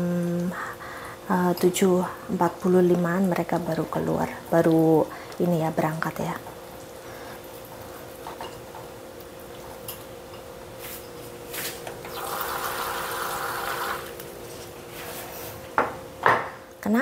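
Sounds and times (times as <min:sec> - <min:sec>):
tap water running: 0:11.8 - 0:14.3.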